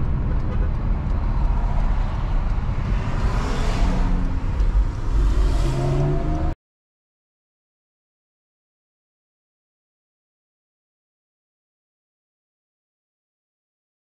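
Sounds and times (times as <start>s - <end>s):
tyre and engine rumble: 0.0s - 6.6s.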